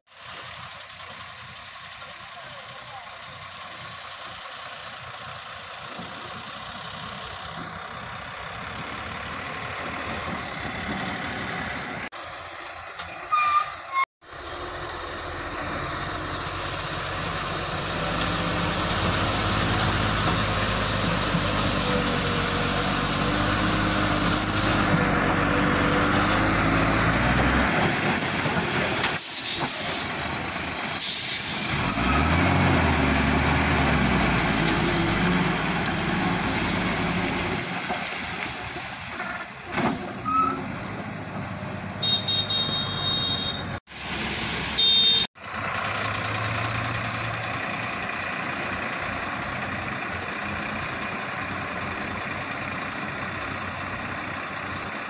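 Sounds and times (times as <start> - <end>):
diesel lorry engine under load: 0.1 - 55.0
short high-pitched beep: 42.0 - 43.7, 44.8 - 45.3.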